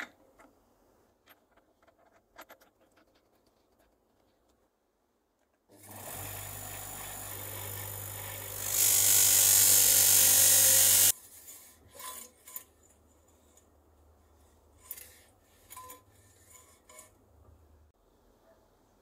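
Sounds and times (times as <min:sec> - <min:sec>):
bench grinder grinding steel: 0:05.8 - 0:12.7.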